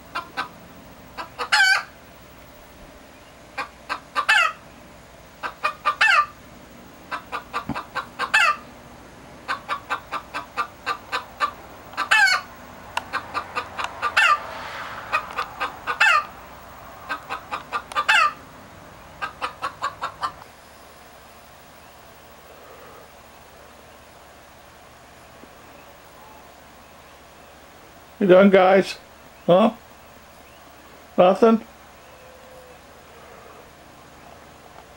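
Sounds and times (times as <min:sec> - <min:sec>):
chicken clucking and squawking: 0:00.0 - 0:02.0, 0:03.4 - 0:04.7, 0:05.3 - 0:08.8, 0:09.4 - 0:20.5.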